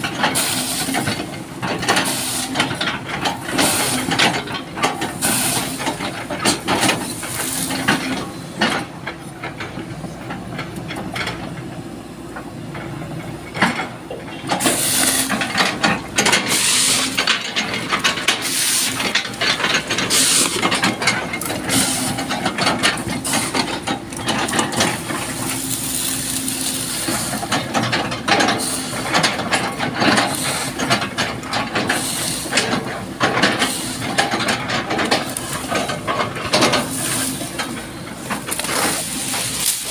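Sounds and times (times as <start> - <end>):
excavator engine hum: 0.0 - 39.9
hydraulic hissing bursts: 16.4 - 17.2.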